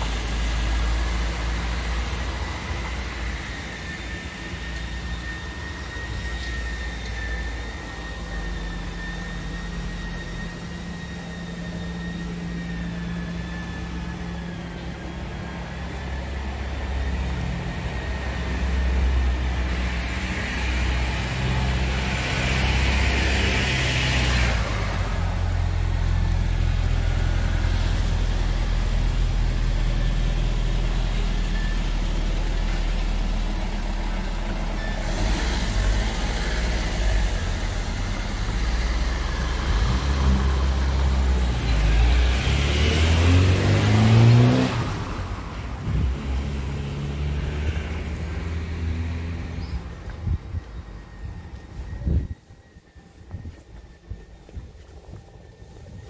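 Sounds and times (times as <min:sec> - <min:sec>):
tyres hissing on wet road: 0:00.0 - 0:49.7
vehicle engine accelerating: 0:00.0 - 0:56.0
steady low rumble: 0:49.4 - 0:56.0.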